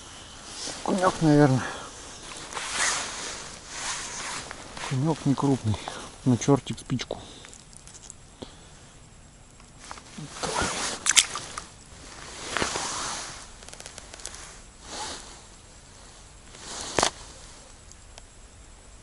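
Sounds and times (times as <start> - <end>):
clothing rustling: 0.0 - 6.2, 9.8 - 17.7.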